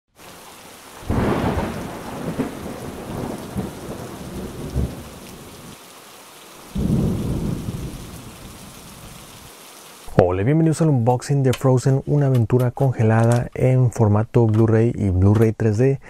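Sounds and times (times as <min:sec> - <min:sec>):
steady rain: 0:00.1 - 0:13.8
thunderclaps: 0:01.0 - 0:05.7, 0:06.7 - 0:09.2.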